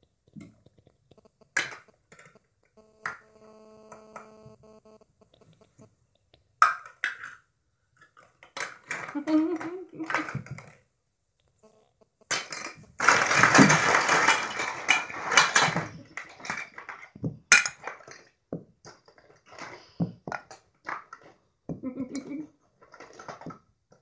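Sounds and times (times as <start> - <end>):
plastic toy pieces clattering: 6.6 - 7.4, 8.0 - 10.8, 12.3 - 21.4, 22.1 - 24.0.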